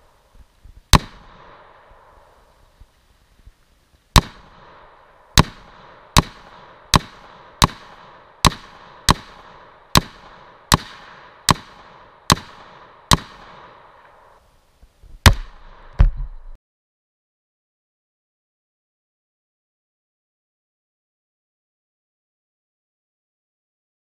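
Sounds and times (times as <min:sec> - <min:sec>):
rifle shots echoing: 0:00.9 - 0:02.6, 0:04.2 - 0:14.4, 0:15.2 - 0:16.0.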